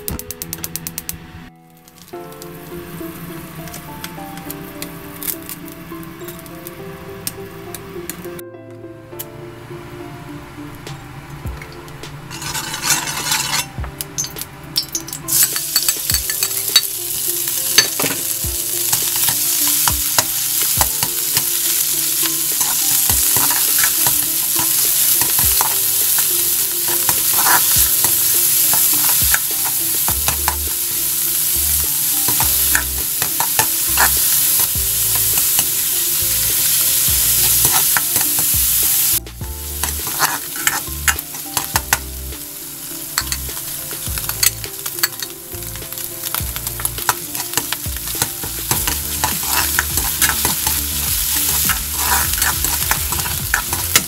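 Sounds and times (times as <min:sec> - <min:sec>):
food sizzling in a wok: 0:01.8 - 0:08.2, 0:12.2 - 0:54.0
metal spatula scraping wok: 0:12.2 - 0:54.0.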